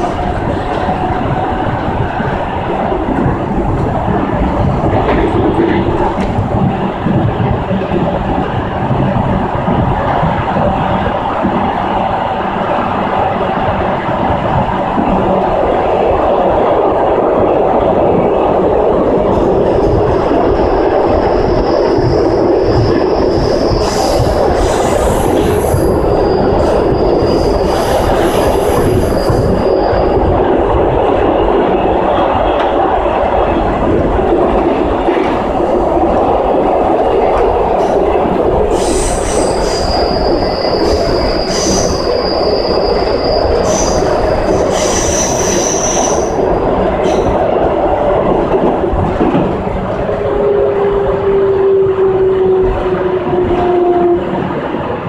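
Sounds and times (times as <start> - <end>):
train wheels rumbling on rail: 0.0 - 55.0
high-pitched wheel squeal: 38.8 - 46.3.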